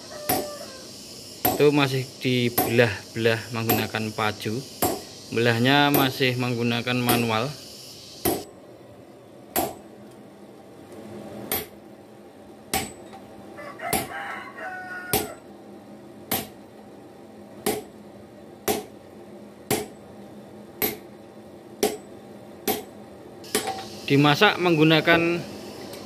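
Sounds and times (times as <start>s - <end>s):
rooster crowing: 0.0s - 1.0s, 13.6s - 15.5s.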